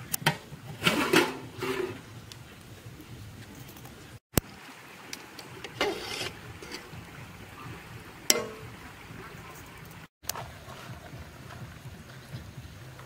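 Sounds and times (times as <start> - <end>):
metal ladle scraping metal pot: 0.8 - 2.0, 5.6 - 7.0.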